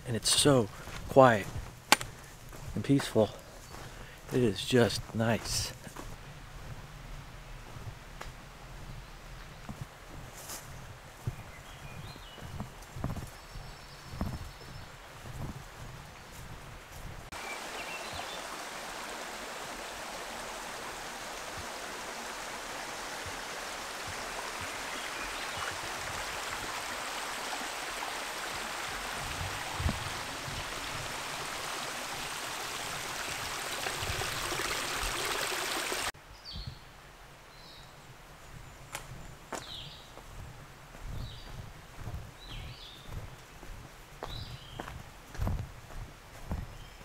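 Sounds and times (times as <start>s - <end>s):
creek water rushing: 14.6s - 36.2s.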